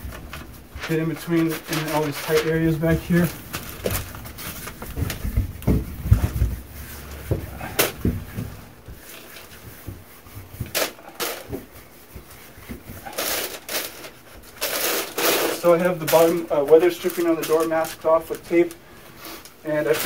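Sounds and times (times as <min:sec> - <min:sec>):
cloth rubbing on metal door: 0:00.0 - 0:20.0
low thumps: 0:04.8 - 0:08.9.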